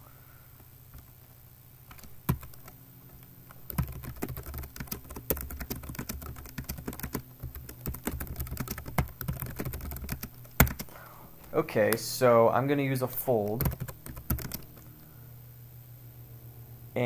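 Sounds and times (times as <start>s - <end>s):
typing on computer keyboard: 1.9s - 2.8s, 3.5s - 11.6s, 13.6s - 14.8s.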